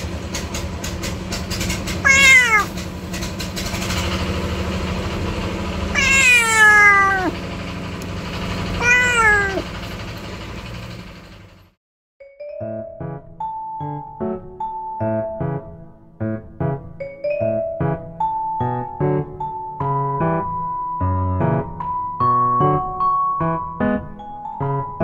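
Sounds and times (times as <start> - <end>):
cat meowing: 2.0 - 2.8, 5.9 - 7.4, 8.7 - 9.7
piano music: 12.2 - 25.0.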